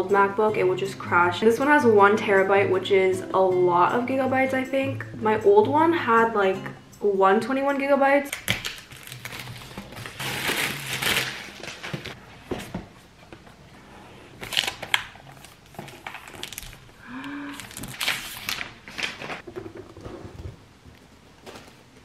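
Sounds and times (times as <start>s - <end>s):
cardboard and paper rustling: 8.8s - 13.6s, 14.3s - 20.6s, 21.3s - 22.0s.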